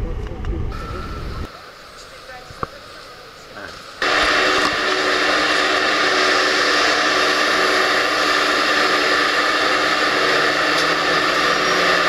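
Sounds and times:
train ventilation fans whirring: 0.0 - 12.0
low hum: 3.8 - 12.0.

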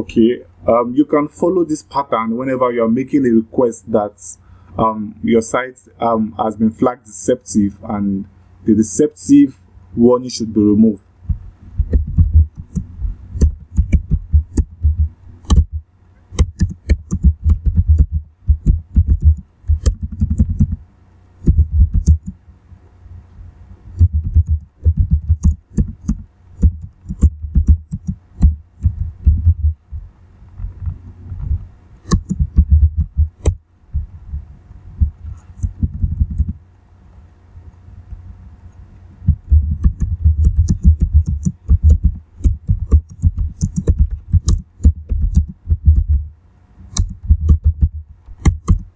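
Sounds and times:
typing on computer keyboard: 11.8 - 15.8, 16.4 - 20.8, 21.4 - 22.4, 24.0 - 29.6, 32.0 - 33.6, 35.3 - 36.6, 39.5 - 46.2, 46.9 - 48.9.

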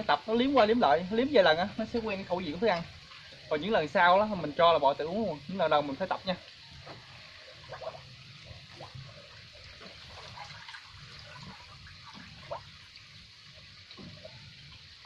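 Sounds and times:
cattle slurping: 7.6 - 12.7.

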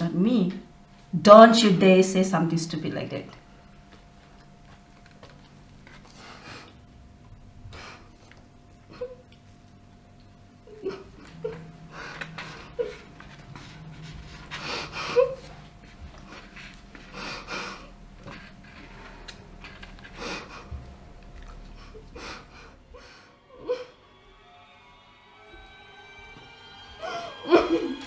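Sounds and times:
heavy breaths and sniffs: 5.9 - 6.8, 11.9 - 23.3
soft music: 20.5 - 28.0.

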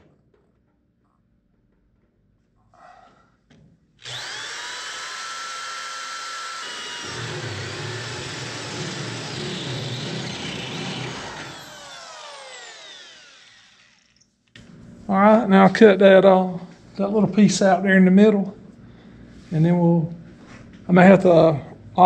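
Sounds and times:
drill whining through sheet metal: 4.0 - 14.4.

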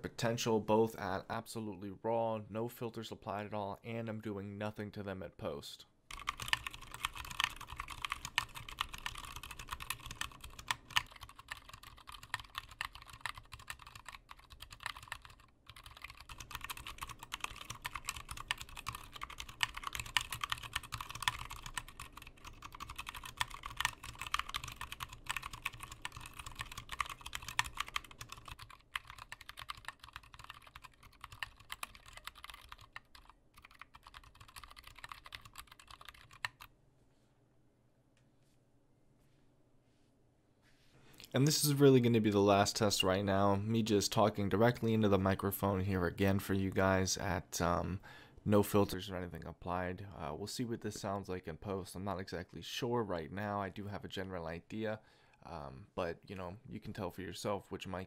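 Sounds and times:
fast keyboard typing: 6.1 - 36.7.

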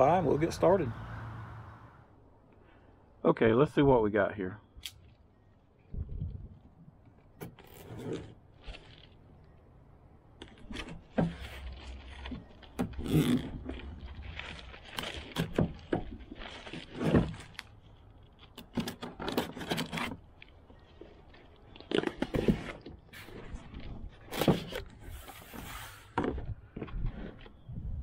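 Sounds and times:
cardboard scraping and rustling: 10.5 - 17.6, 18.7 - 20.3, 21.9 - 27.6.

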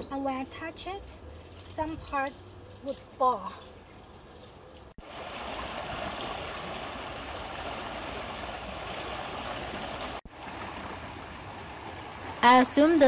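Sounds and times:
river current rushing: 5.0 - 13.0.

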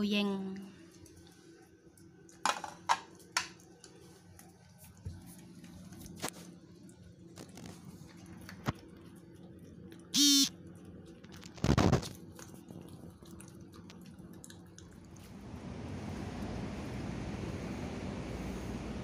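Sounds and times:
dogs eating from plastic plate: 1.0 - 15.6.

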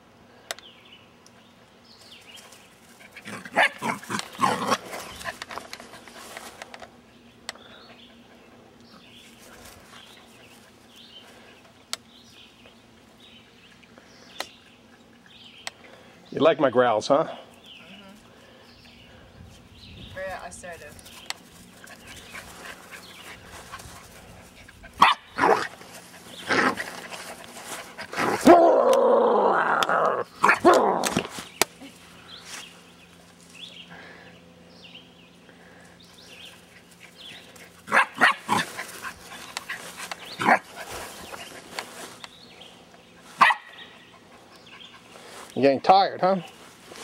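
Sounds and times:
puppy growling and barking: 3.0 - 5.4, 24.9 - 27.1, 28.0 - 31.3, 37.8 - 39.3, 40.3 - 40.9.

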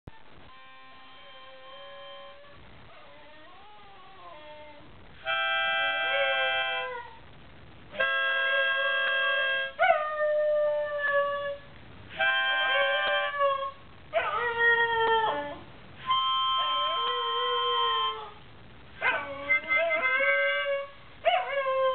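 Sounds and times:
dog howling: 12.6 - 18.4, 19.0 - 21.9.

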